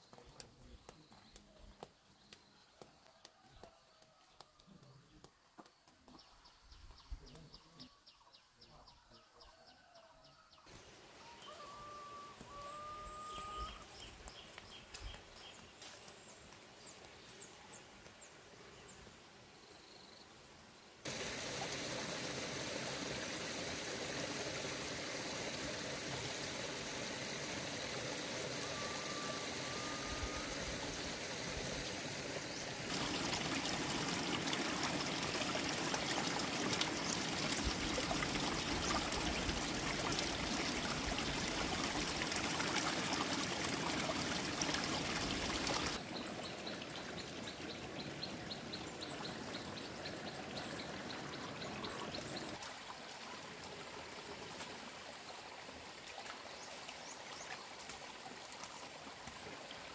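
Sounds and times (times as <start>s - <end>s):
water running over stones: 21.0s - 59.9s.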